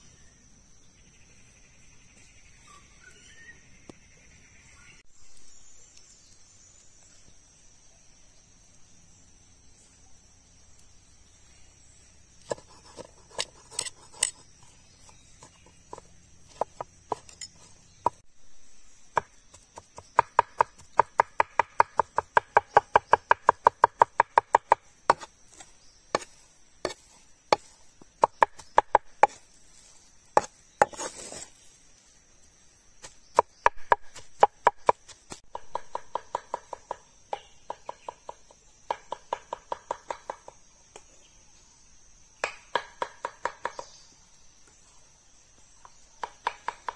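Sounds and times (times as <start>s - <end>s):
knife chopping on wooden board: 19.2s - 29.4s.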